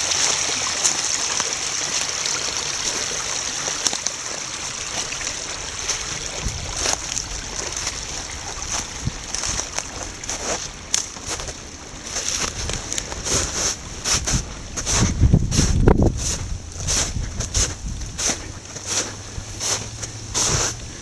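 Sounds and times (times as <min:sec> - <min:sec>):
stream babbling: 0:00.0 - 0:21.0.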